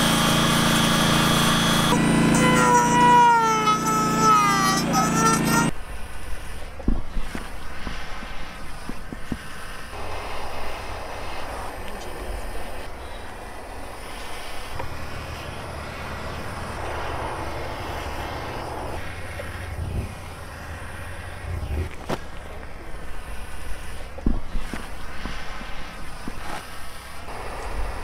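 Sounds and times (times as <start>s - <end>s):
gas torch roaring hiss: 5.1s - 28.0s
low rumble: 10.1s - 24.1s.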